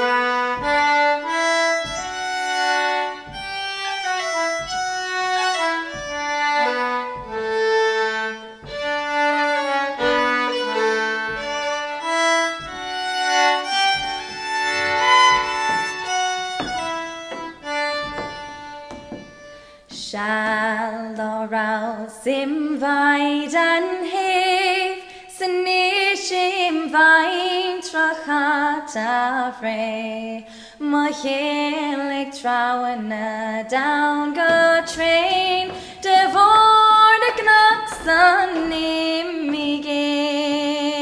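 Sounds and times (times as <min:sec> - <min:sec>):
fiddles and accordions playing folk tune: 0:00.0 - 0:19.9.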